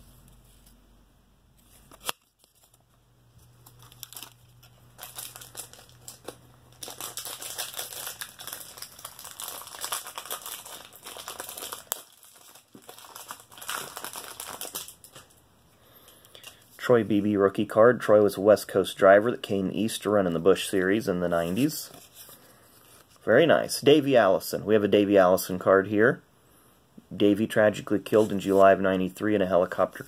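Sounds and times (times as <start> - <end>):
foil wrapper crinkling and tearing: 1.9 - 2.8, 3.6 - 15.4.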